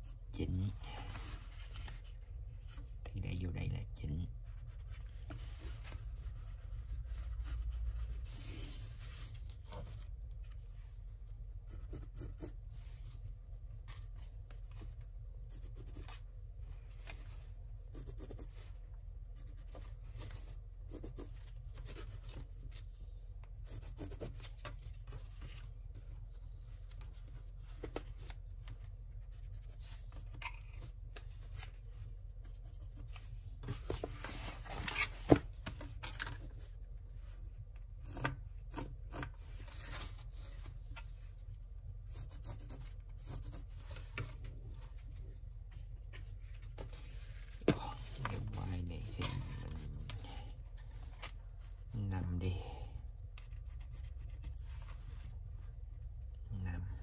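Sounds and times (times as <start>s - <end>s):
pencil scratching on fabric: 11.6s - 12.6s, 15.5s - 16.2s, 17.9s - 18.6s, 20.9s - 21.5s, 23.6s - 24.5s, 42.1s - 43.8s.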